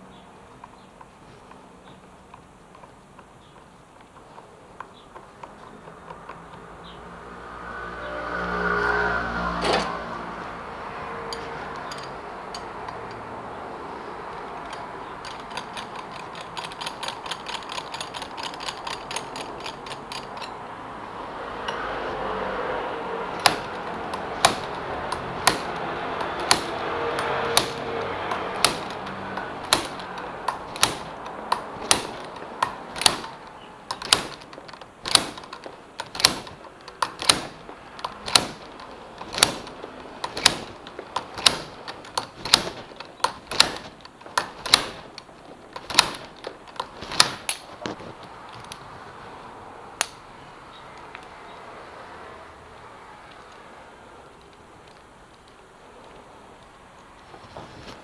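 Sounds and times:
rapid clicks: 0:14.3 - 0:20.6, 0:23.3 - 0:48.8.

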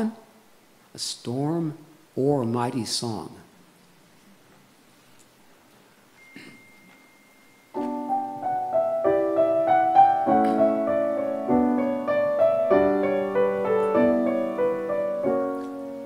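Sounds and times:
grand piano playing: 0:07.7 - 0:16.0.

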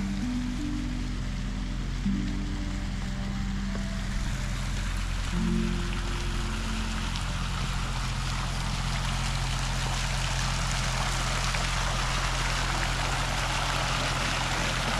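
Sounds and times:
low hum: 0:00.0 - 0:14.9.

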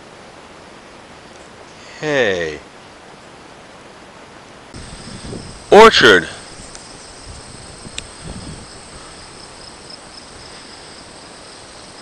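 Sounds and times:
insects trilling in grass: 0:04.8 - 0:12.0.

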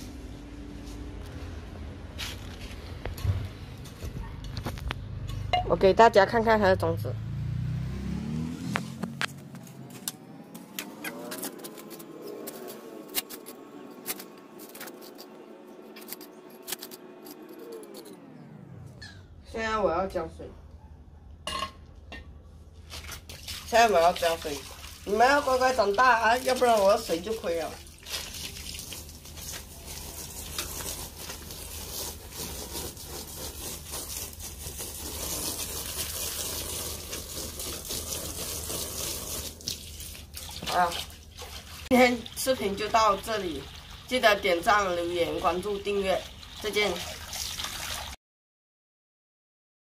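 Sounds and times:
faint motor hum: 0:09.4 - 0:23.4
hand hoe scraping garden soil: 0:10.8 - 0:15.3, 0:29.4 - 0:39.4
hose water spraying on soil: 0:23.4 - 0:48.1.

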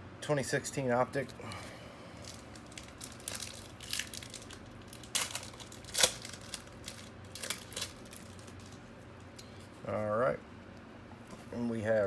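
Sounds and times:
wrapper crinkling and tearing: 0:02.2 - 0:08.9.

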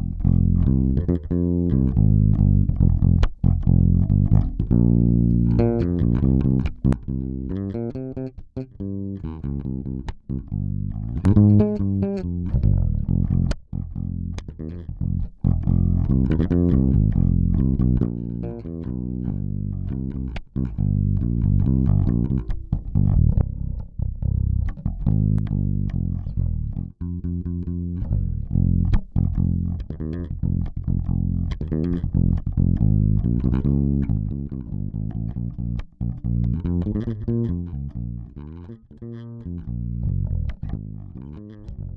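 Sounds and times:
plucked bass line: 0:00.0 - 0:41.9.

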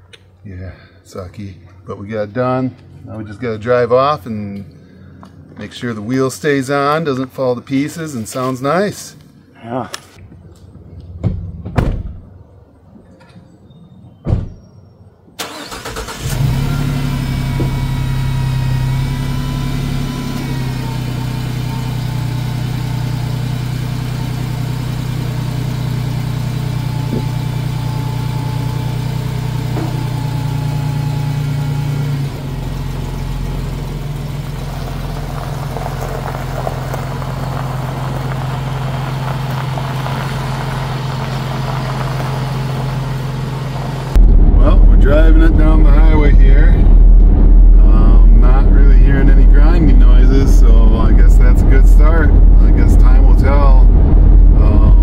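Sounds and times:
van engine cranking and starting: 0:15.4 - 0:44.2
engine idling: 0:15.4 - 0:55.0.

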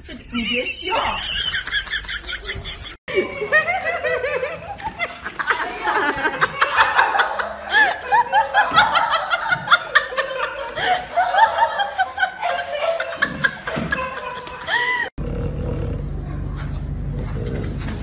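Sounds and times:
high-pitched giggling: 0:03.1 - 0:15.1.

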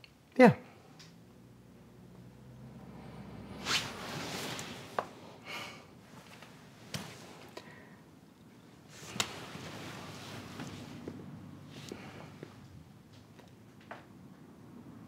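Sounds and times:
soft rustle: 0:03.6 - 0:05.2, 0:06.0 - 0:07.6, 0:08.8 - 0:12.8.

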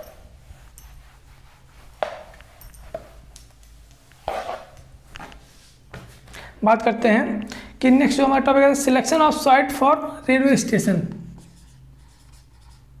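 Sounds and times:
eraser wiping whiteboard: 0:00.0 - 0:03.3, 0:11.4 - 0:12.9
low room hum: 0:00.0 - 0:13.0.

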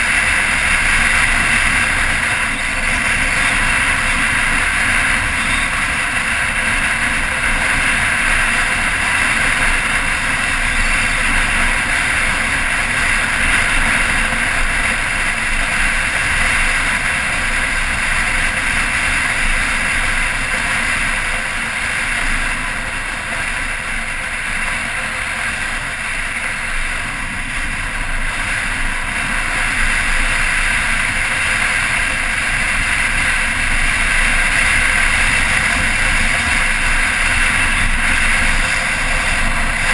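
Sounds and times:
motorcycle engine: 0:00.0 - 0:39.9.

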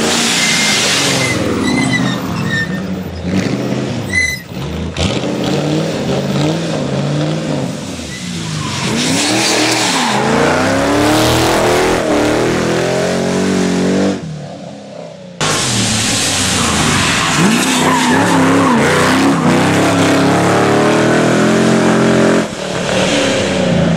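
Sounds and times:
rally car engines revving: 0:00.0 - 0:23.9
tyre squeal: 0:00.2 - 0:04.6.

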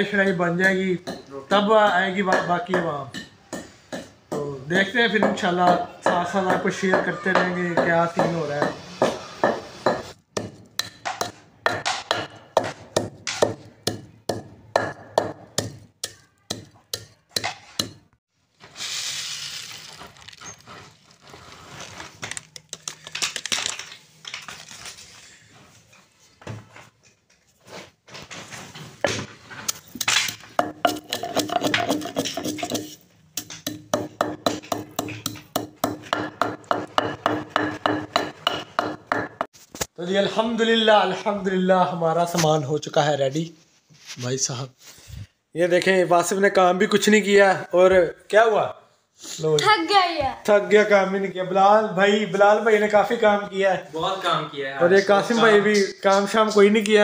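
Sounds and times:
pestle pounding in stone mortar: 0:05.2 - 0:18.0, 0:30.0 - 0:39.5
seeds poured from paper packet: 0:18.7 - 0:23.6.

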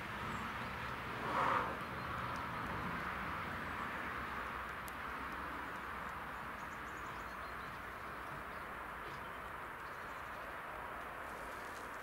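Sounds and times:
distant hiss: 0:01.2 - 0:01.8.

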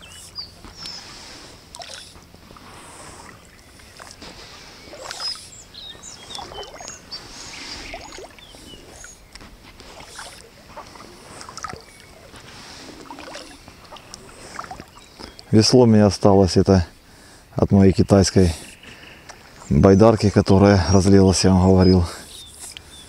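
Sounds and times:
paddle splashing in water: 0:00.0 - 0:15.1.

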